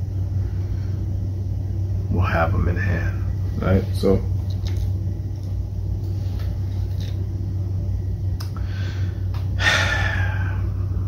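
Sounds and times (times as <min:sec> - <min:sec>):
steady low hum: 0:00.0 - 0:11.0
man breathing in: 0:08.6 - 0:10.8.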